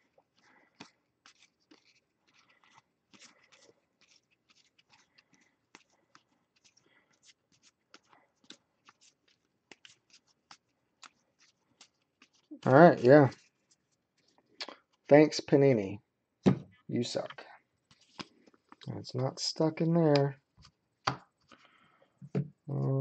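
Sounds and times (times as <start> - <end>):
trading cards being handled: 0.2 - 15.6, 16.5 - 19.0, 19.6 - 22.6.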